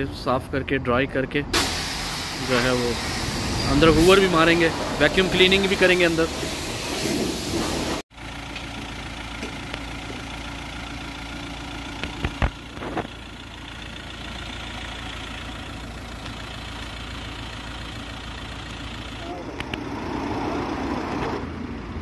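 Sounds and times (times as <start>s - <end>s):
motor idling: 8.1s - 19.5s.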